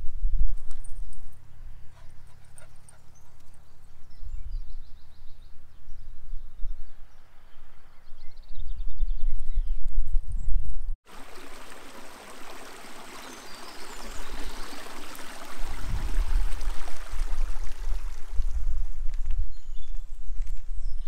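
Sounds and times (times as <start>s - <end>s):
songbirds trilling: 1.5s - 9.2s, 12.0s - 15.8s
wind buffeting microphone: 4.0s - 10.9s, 14.0s - 21.0s.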